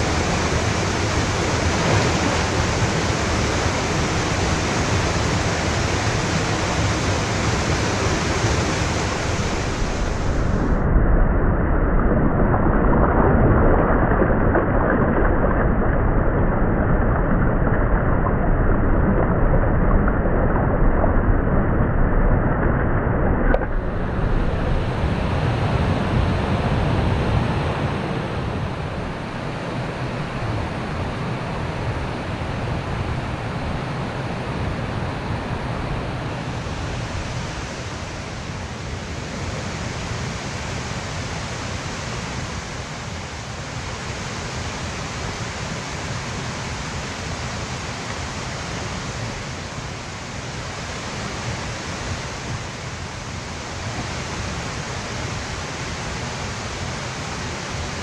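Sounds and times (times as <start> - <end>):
fast-flowing stream water: 0.0 - 10.6, 23.5 - 58.0.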